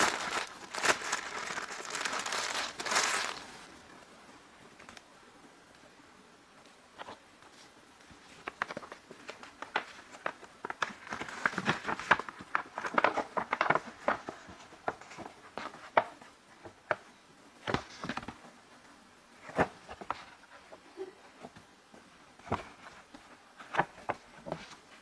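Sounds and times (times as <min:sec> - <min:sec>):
paper bag crinkling: 0:00.0 - 0:03.7, 0:08.6 - 0:15.2.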